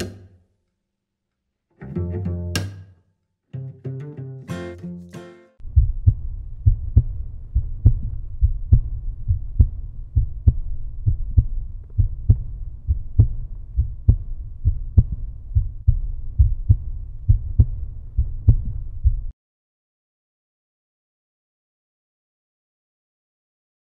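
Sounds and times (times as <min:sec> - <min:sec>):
deep low pulsing rumble: 0:05.6 - 0:19.3
heavy thumping beats: 0:05.6 - 0:19.3.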